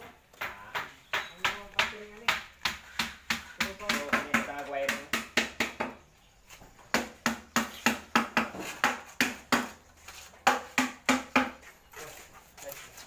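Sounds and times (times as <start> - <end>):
trowels tapping wet cement: 0.0 - 5.8.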